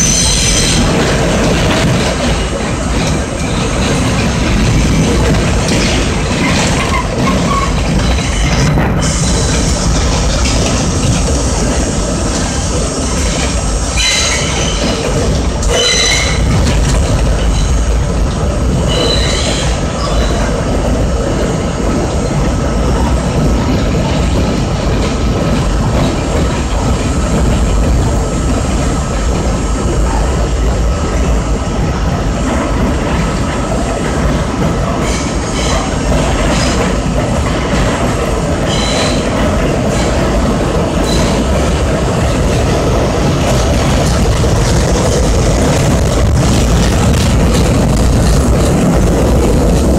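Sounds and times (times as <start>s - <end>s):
subway train rumbling: 0.0s - 49.9s
high-pitched wheel squeals: 14.0s - 15.0s, 15.7s - 16.5s, 18.9s - 20.4s.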